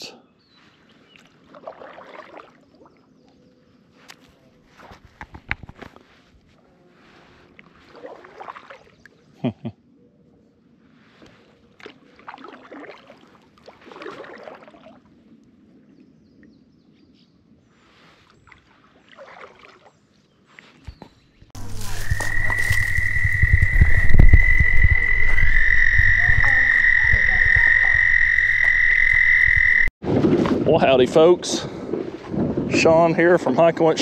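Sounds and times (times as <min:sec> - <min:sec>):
faint scattered calls: 0:21.6 - 0:29.9
frog trilling: 0:21.6 - 0:29.9
low rumble: 0:21.6 - 0:29.9.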